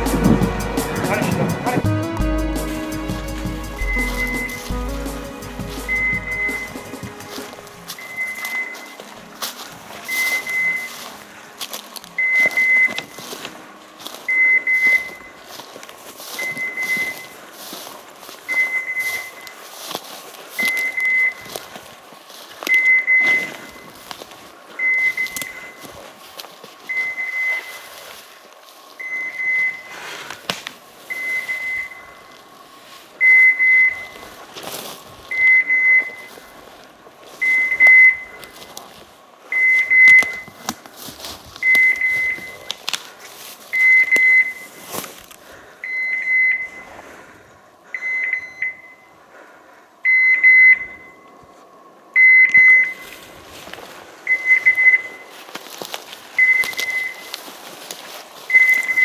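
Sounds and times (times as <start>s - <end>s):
footsteps crunching through dry leaves: 2.6s - 45.8s, 52.9s - 59.0s
beeper collar high beep: 3.7s - 9.0s, 10.1s - 11.0s, 12.2s - 13.3s, 14.3s - 15.4s, 37.4s - 38.4s.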